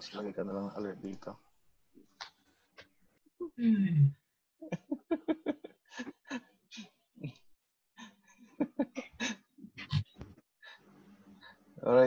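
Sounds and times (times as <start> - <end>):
man laughing softly: 4.6 - 6.4, 8.5 - 10.0
breathing: 10.6 - 11.7.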